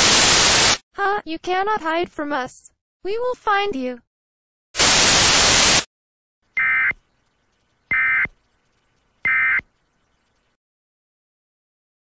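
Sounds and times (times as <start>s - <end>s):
loud static: 0.0s - 0.8s, 4.8s - 5.9s
warbling digital data bursts: 0.0s - 0.8s, 4.8s - 5.9s.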